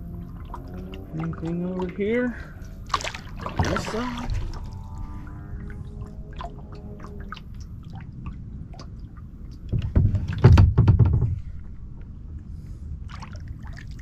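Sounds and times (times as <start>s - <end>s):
low wind rumble: 0.0s - 14.0s
kayak knocks and bumps: 9.6s - 11.5s.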